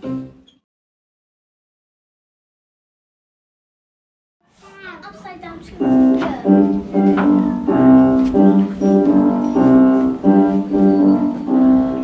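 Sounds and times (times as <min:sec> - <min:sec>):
piano chords: 0:05.8 - 0:12.0.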